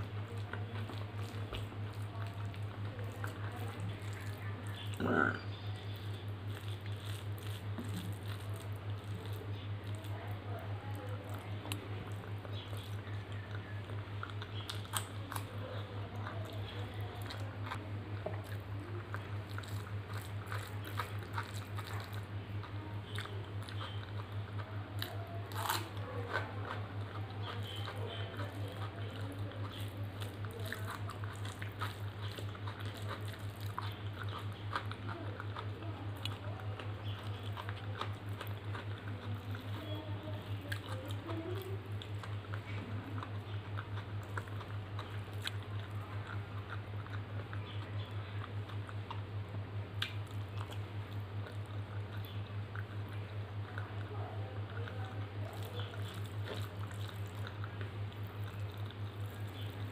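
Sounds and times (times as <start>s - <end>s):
hand squishing rice on steel plate: 0.0s - 15.9s
chewing with wet mouth clicks: 0.0s - 59.9s.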